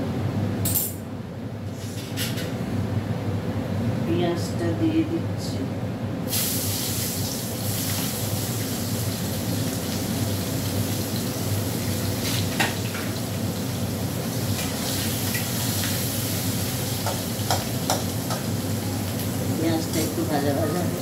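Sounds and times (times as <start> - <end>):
onions sizzling in hot oil: 6.3 - 21.0.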